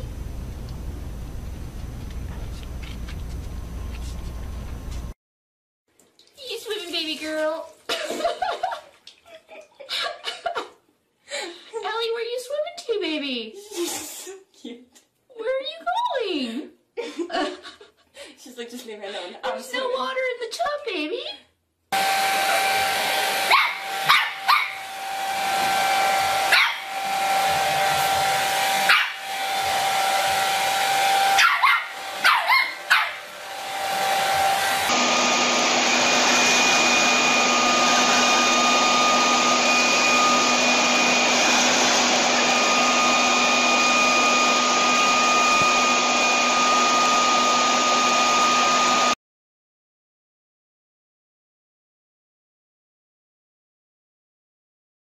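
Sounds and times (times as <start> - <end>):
hair dryer running: 21.9 - 49.2
leaf blower whining: 22.0 - 49.2
puppy barking and yapping: 23.4 - 24.9, 26.3 - 27.0, 28.8 - 29.3, 31.2 - 33.3.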